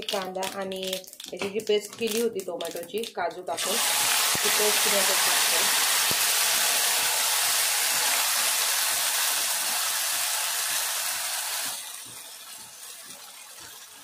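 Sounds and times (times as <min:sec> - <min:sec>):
hot oil sizzling: 0:03.5 - 0:14.0
paste poured into pan: 0:03.6 - 0:11.9.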